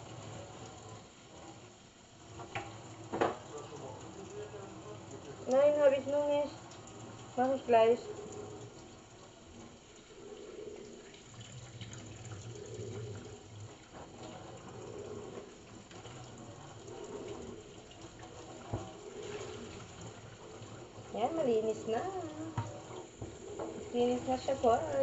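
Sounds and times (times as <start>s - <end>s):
tap water running into sink: 0.0s - 25.0s
cloth scrubbing metal sink: 10.7s - 25.0s.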